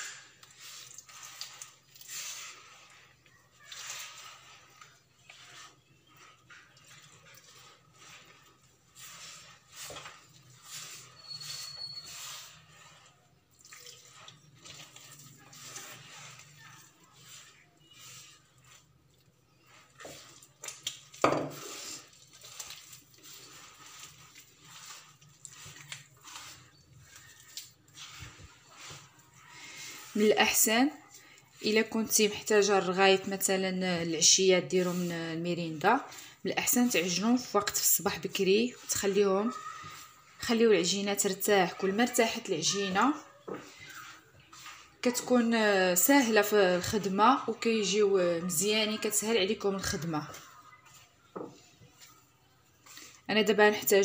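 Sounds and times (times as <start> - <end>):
hand kneading dough in a bowl: 0.0 - 54.0.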